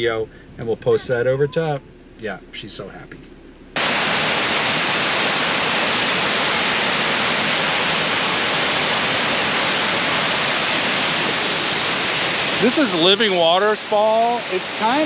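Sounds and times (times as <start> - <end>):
waterfall rushing: 3.8 - 15.0.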